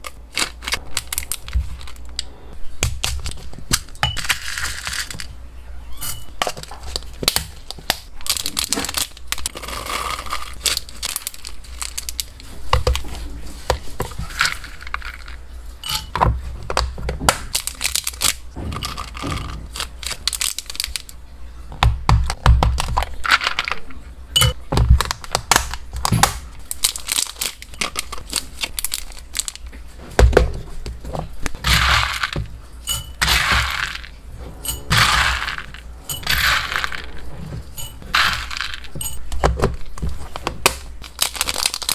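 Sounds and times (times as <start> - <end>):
pellets clicking on glass: 31.6 - 34.1
spoon scooping dry pellets: 31.6 - 39.3.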